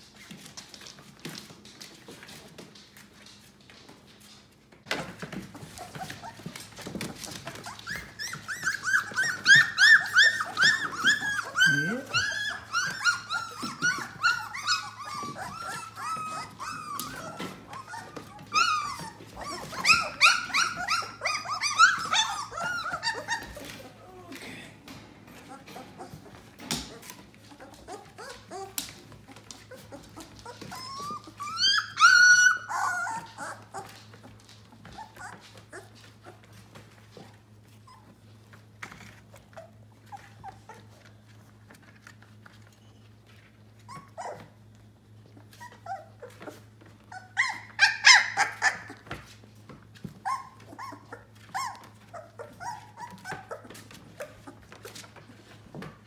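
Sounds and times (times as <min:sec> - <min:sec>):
scratching and shuffling: 0:00.0 - 0:56.0
puppies crying: 0:05.1 - 0:24.4, 0:25.3 - 0:42.6, 0:43.2 - 0:56.0
puppies yelping: 0:05.5 - 0:24.2, 0:25.4 - 0:42.2, 0:43.7 - 0:44.7, 0:45.3 - 0:49.4, 0:50.0 - 0:55.9
puppy squealing: 0:07.2 - 0:24.0, 0:25.7 - 0:34.0, 0:34.8 - 0:36.4, 0:43.8 - 0:44.6, 0:45.4 - 0:49.2, 0:50.2 - 0:55.1.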